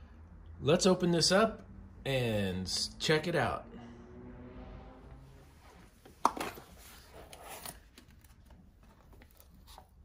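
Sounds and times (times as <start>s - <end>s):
cardboard scraping and rustling: 6.4s - 10.0s.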